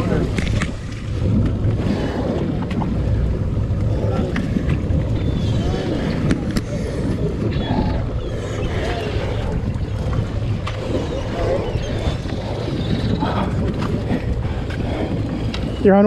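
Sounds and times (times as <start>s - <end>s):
boat engine rumble: 0.0s - 16.0s
wind on microphone: 0.0s - 16.0s
faint voices: 3.8s - 16.0s.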